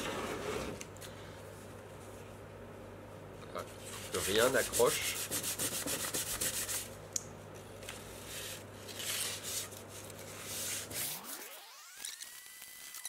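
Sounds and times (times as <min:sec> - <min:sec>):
sandpaper rubbing on wood: 0:04.0 - 0:06.9.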